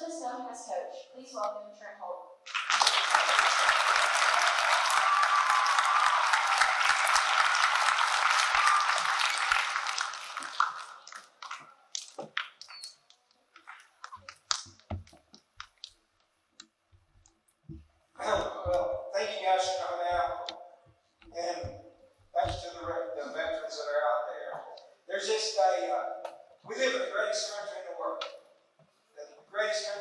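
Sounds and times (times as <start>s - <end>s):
audience applauding: 2.5s - 13.0s.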